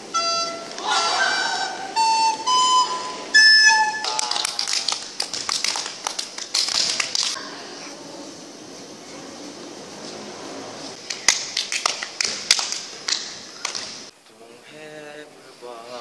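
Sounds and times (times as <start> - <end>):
recorder notes: 0.0 - 4.5
people clapping: 3.7 - 7.4, 11.0 - 14.1.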